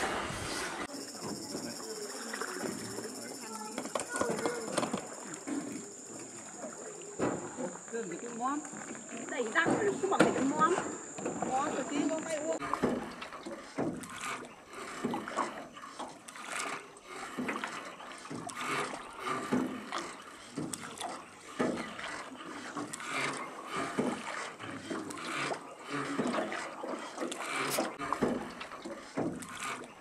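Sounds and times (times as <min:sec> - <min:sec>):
oars splashing in water: 0:00.0 - 0:30.0
water lapping: 0:00.0 - 0:30.0
wooden boat knocks: 0:09.4 - 0:14.1, 0:19.4 - 0:20.0, 0:21.6 - 0:22.0, 0:23.9 - 0:24.3, 0:28.1 - 0:29.6.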